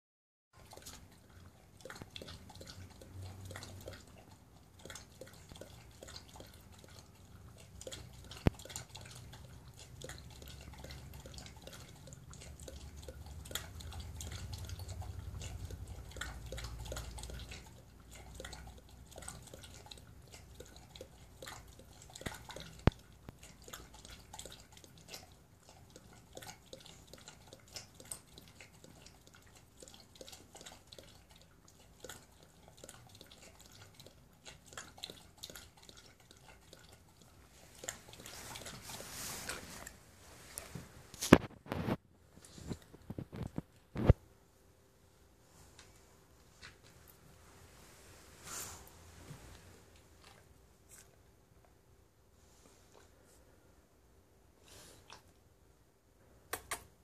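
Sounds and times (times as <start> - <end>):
dog lapping water: 0.6 - 42.0.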